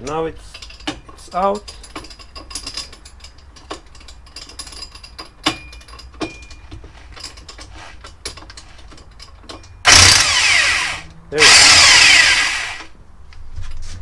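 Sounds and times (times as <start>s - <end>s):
tools clicking and knocking: 0.0s - 12.9s
electric impact wrench running: 9.9s - 12.9s.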